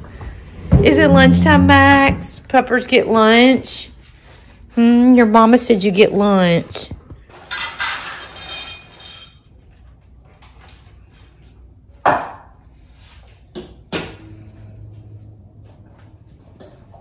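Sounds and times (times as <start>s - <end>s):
metal bowls clinking into feeder: 7.5s - 9.4s.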